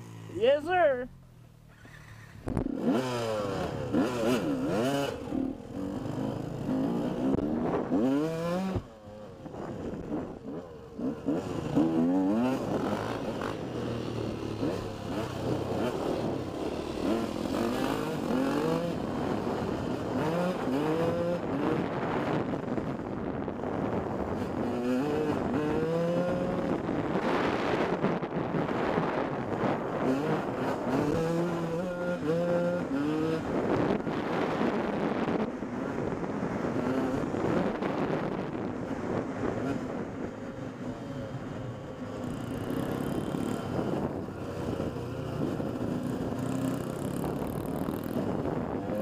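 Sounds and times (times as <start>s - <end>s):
dirt bike engine revving: 1.8s - 8.9s, 9.9s - 22.3s, 30.0s - 33.8s.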